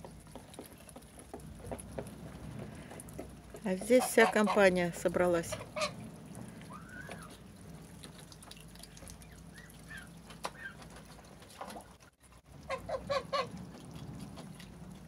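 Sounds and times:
geese honking: 3.8s - 4.7s, 5.4s - 7.4s, 12.6s - 13.5s.

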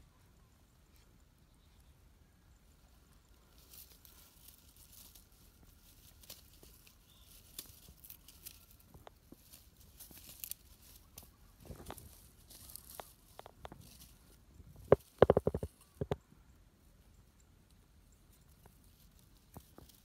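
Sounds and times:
dry plant litter rustling: 3.2s - 16.2s.

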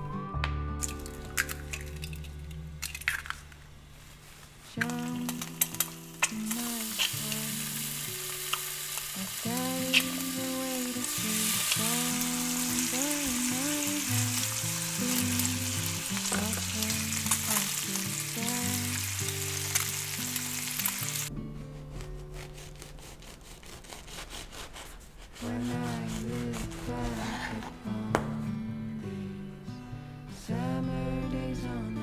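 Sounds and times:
eggs and bacon sizzling in a pan: 0.9s - 2.2s, 2.8s - 3.5s, 4.8s - 21.3s.

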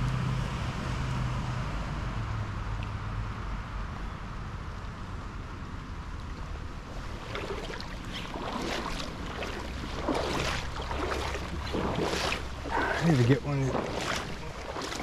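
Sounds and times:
creek water splashing: 6.3s - 15.0s.

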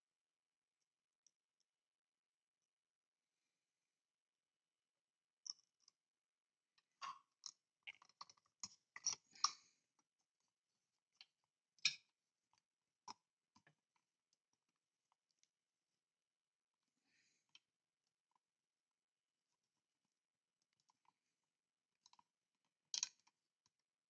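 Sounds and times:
small clicks and taps of screwdriver: 22.9s - 23.9s.

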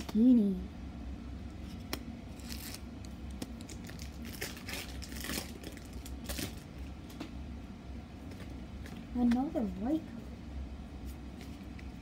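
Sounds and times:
steady low hum: 0.0s - 12.0s
foil wrappers crinkling: 2.3s - 6.8s.

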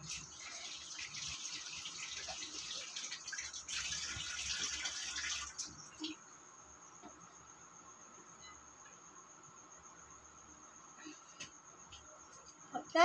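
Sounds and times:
tap water splashing in sink: 0.0s - 6.1s.

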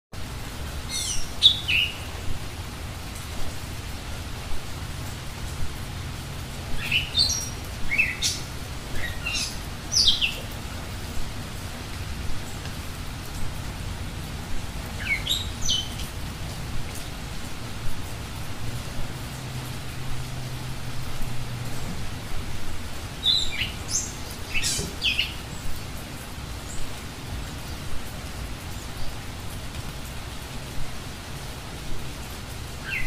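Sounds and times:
rain hiss: 0.2s - 33.0s
water drips: 0.2s - 33.0s
songbird singing: 0.7s - 3.1s, 6.4s - 10.8s, 14.5s - 17.2s, 23.0s - 29.4s, 32.7s - 33.0s.

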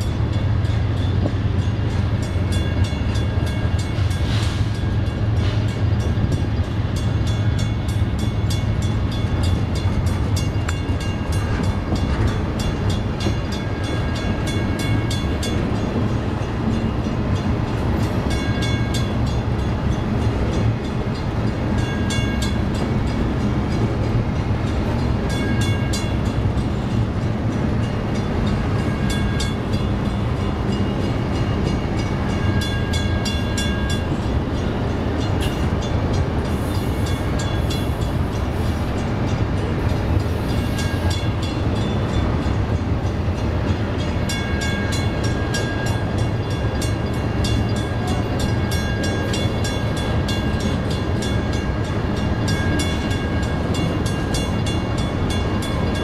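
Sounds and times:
freight train rumbling on rails: 0.0s - 56.0s.

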